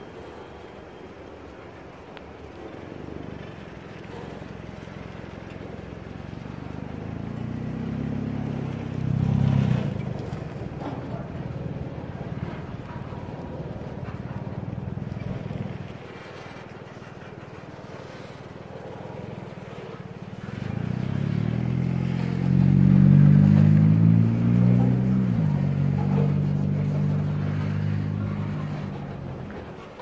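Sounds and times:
engine: 0.0 - 30.0
freight train rumbling: 9.5 - 16.1, 23.8 - 30.0.

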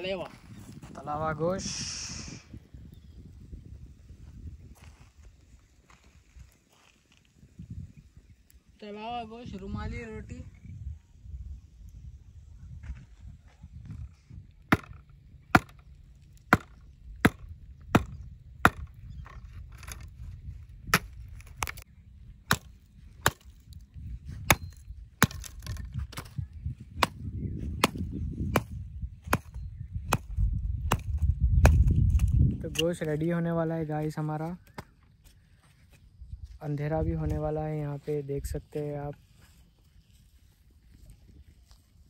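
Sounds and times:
branch being chopped: 14.7 - 15.9, 16.5 - 19.9, 22.5 - 26.4, 27.8 - 33.0.

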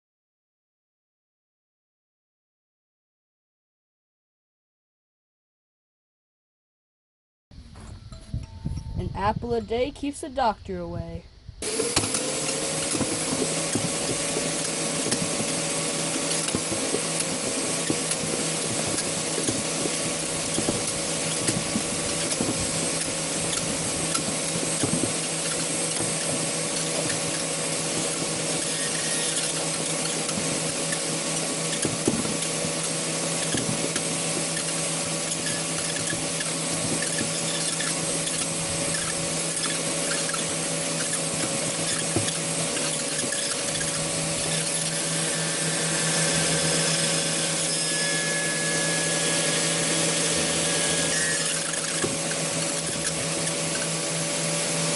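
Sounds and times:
spinning cutter whirring: 11.6 - 54.9
scraping and rattling on blades: 12.0 - 54.9.

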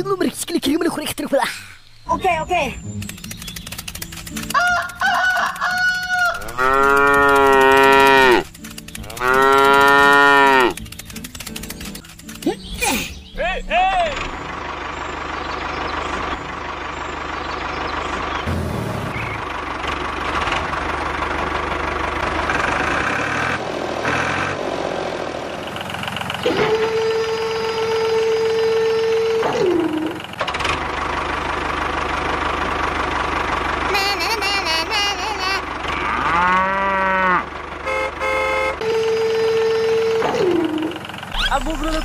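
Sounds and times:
tractor engine running: 0.0 - 42.0
cow mooing: 6.3 - 10.8, 35.9 - 37.5.

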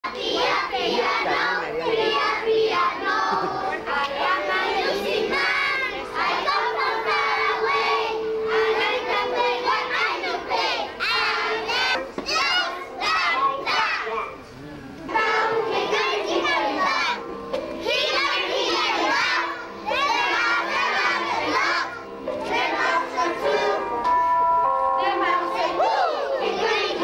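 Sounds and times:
children shouting and chattering: 0.0 - 27.0.

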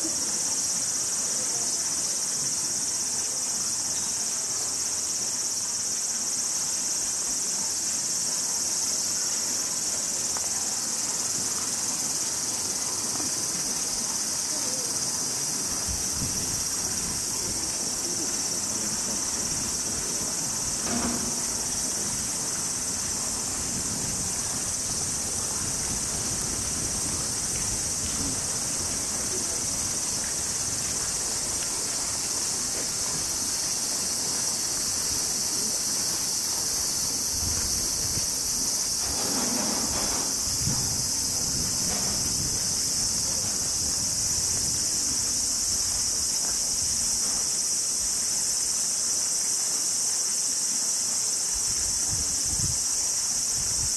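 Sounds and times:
cicadas droning: 0.0 - 53.9.

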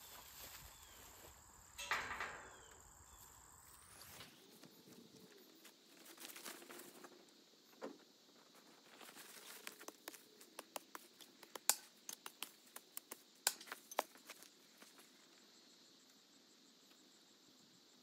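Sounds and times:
footsteps in dry grass and leaves: 0.0 - 1.6, 4.6 - 7.2, 8.6 - 11.4.

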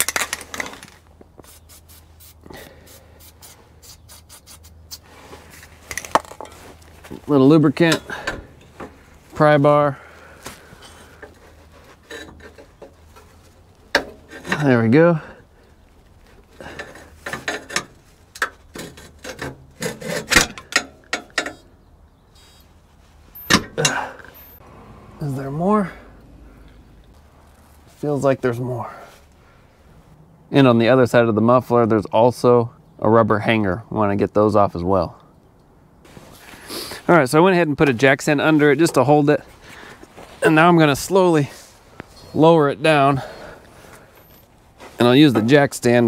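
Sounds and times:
pry bar scraping rubber: 0.1 - 6.5, 16.7 - 20.8
aerosol can spraying: 1.4 - 5.0.

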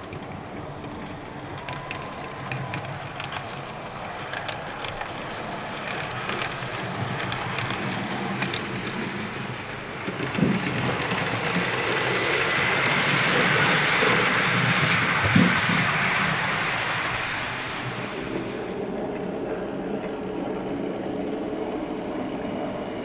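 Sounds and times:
model train rolling rattle: 0.0 - 23.0
wheel clicks on rail joints: 0.0 - 23.0.

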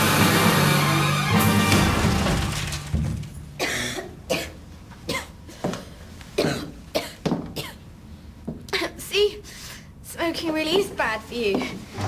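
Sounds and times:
person coughing: 3.6 - 5.4, 6.4 - 7.8.

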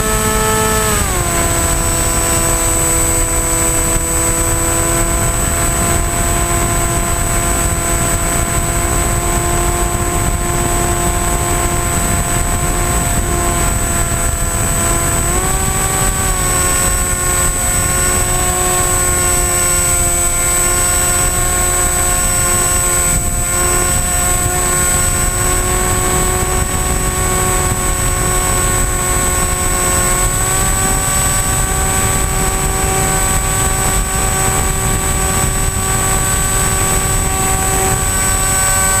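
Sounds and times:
electric motor and propeller whine: 0.0 - 39.0
wind rushing over microphone: 0.0 - 39.0.

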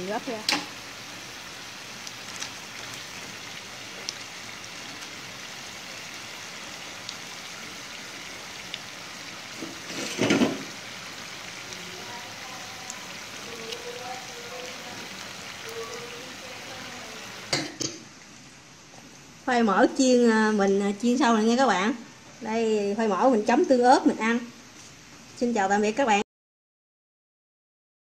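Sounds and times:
hot oil sizzling: 0.0 - 20.7
oil pops and crackles: 2.0 - 3.1.

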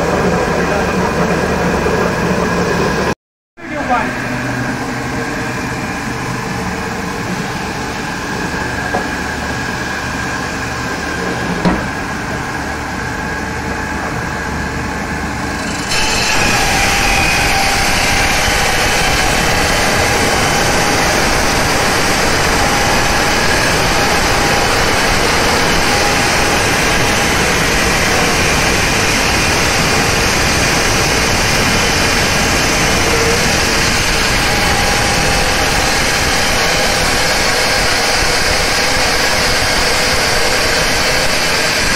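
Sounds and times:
circular saw cutting wet stone: 15.0 - 41.9.

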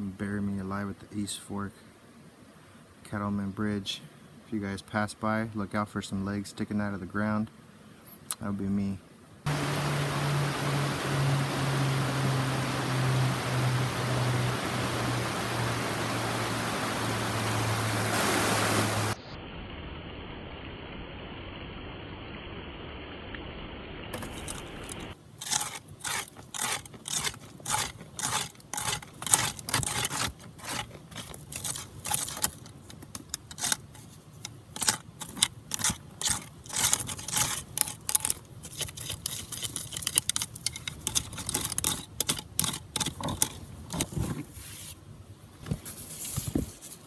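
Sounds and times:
creek rushing over rocks: 9.5 - 19.2
stones clinking: 24.2 - 44.1
hand tool scraping gravel: 24.2 - 45.0.

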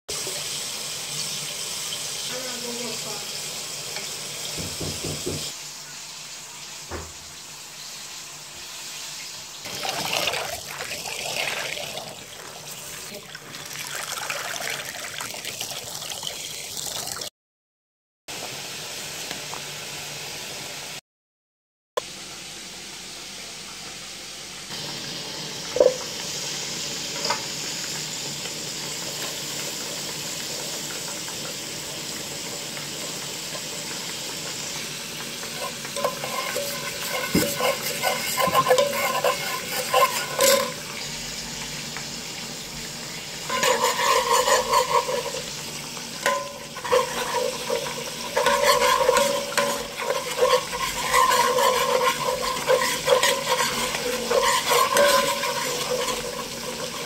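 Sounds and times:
butter sizzling in a pan: 0.1 - 17.2, 18.3 - 21.0, 22.0 - 57.0
metal fork scraping pan: 35.5 - 40.8, 43.4 - 45.6, 46.2 - 57.0.

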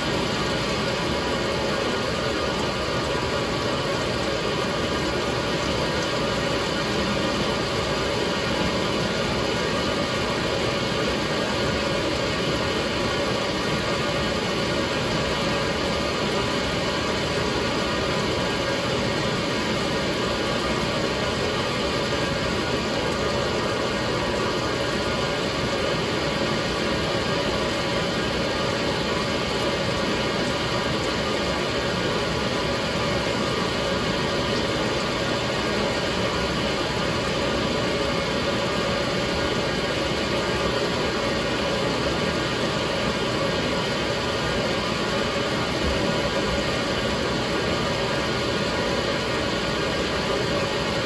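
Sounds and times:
washing machine running: 0.0 - 51.0.

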